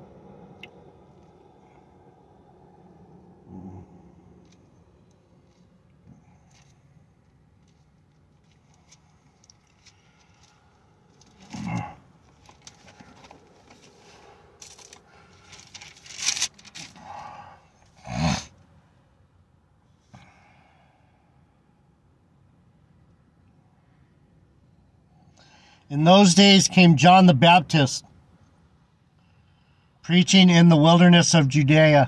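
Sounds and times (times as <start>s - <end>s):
rustling and handling noises: 6.4s - 17.0s.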